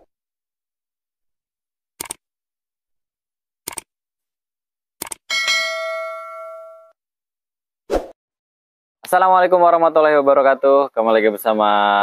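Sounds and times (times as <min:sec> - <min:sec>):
bell ding: 0:05.3 - 0:07.0.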